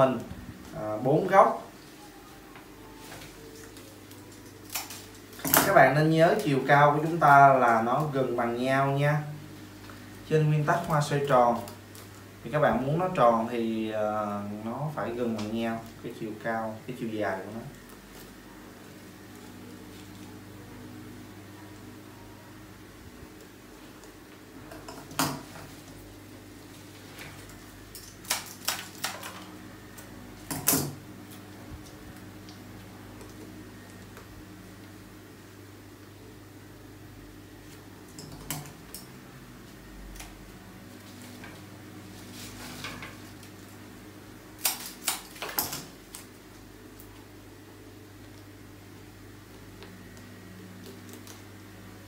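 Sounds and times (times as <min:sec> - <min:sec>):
steady low hum: 0:00.0 - 0:52.0
soft rustle: 0:42.0 - 0:43.0.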